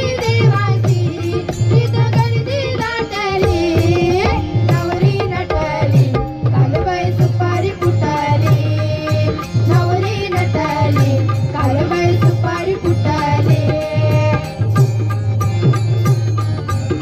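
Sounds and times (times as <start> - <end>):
tabla strokes: 0.0 - 17.0.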